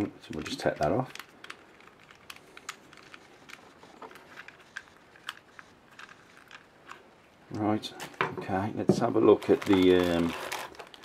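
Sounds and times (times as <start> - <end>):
plastic clicks and scrapes: 0.2 - 7.1, 9.3 - 11.0.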